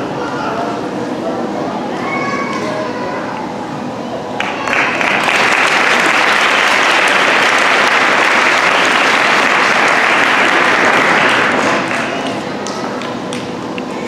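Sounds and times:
audience applauding: 4.4 - 13.5.

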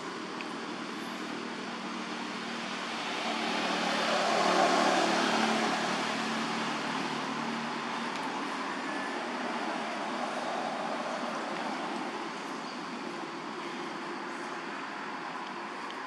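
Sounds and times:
vehicle passing by: 2.6 - 8.0.

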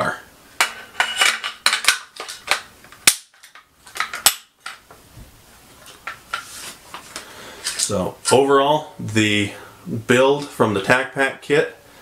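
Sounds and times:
metallic rifle parts clicking: 1.2 - 4.8.

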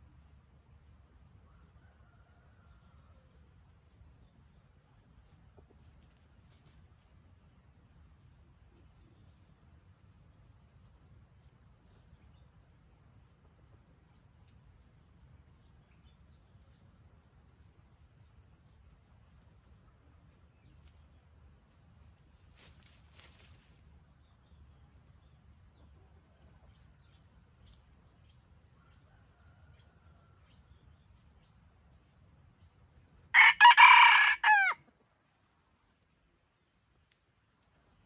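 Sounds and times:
faint rustles: 5.2 - 7.1, 21.9 - 23.9
rooster crowing: 33.3 - 34.8.

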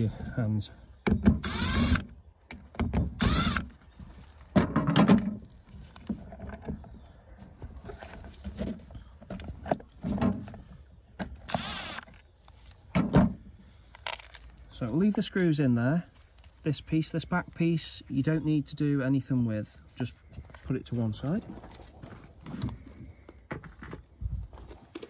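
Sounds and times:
cordless screwdriver motor whirring: 1.4 - 2.1, 3.2 - 3.8, 11.4 - 12.1
plastic knocks and scrapes: 4.0 - 10.7.

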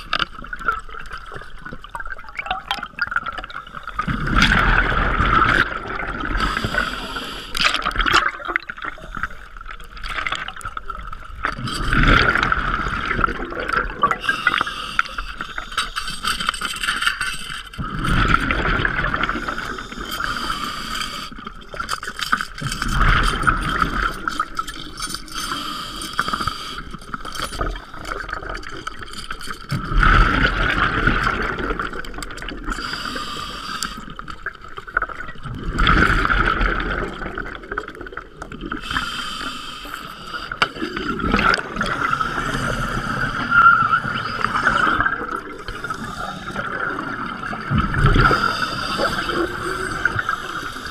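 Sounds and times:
exhaled bubbles rushing underwater: 0.0 - 15.7, 17.8 - 20.8, 22.6 - 25.3, 27.0 - 39.1, 40.7 - 50.9.

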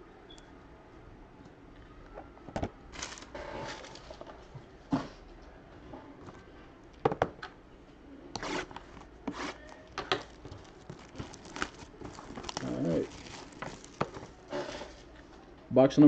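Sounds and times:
wrapper crinkling and tearing: 2.9 - 4.2, 8.4 - 15.2.

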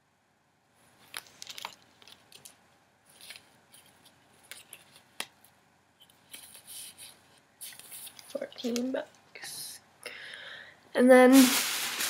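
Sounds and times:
fabric rustling: 11.3 - 12.0.

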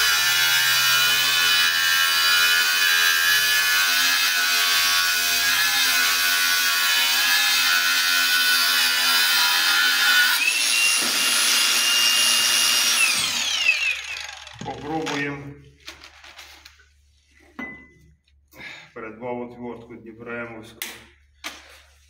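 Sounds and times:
angle grinder cutting metal: 0.0 - 14.7.

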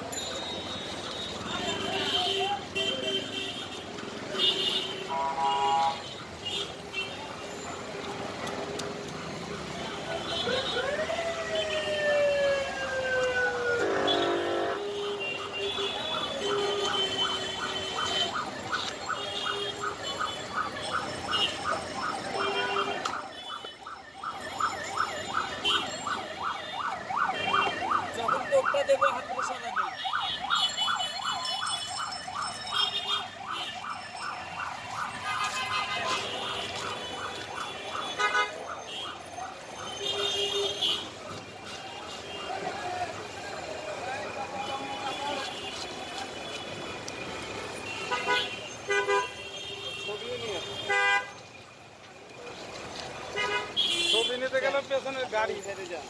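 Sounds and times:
siren-like wail: 8.6 - 47.9.

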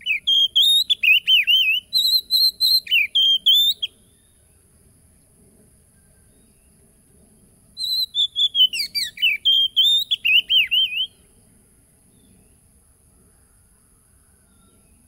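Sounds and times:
bird singing whistled notes: 0.0 - 4.4, 7.8 - 11.4.

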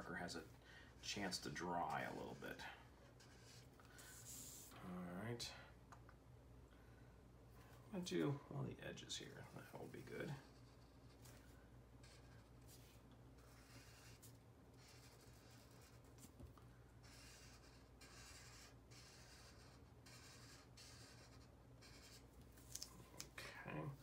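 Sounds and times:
marker scratching on paper: 3.1 - 4.7, 10.4 - 11.4, 12.0 - 16.4, 17.0 - 22.3.

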